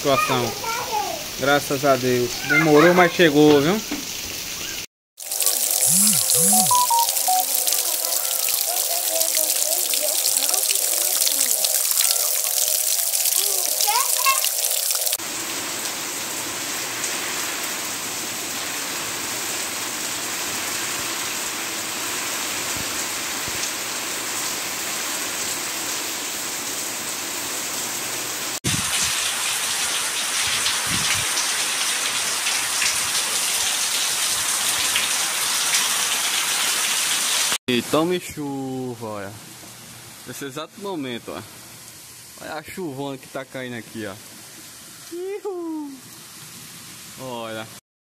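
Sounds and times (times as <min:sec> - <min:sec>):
heavy rain falling: 0:00.0 - 0:04.5, 0:05.2 - 0:37.6
water pouring off a roof: 0:00.0 - 0:04.5, 0:05.2 - 0:37.6.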